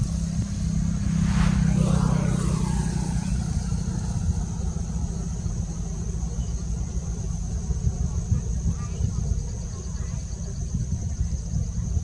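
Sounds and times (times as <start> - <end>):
vehicle passing by: 0.0 - 6.8
high-pitched whine: 0.0 - 7.4.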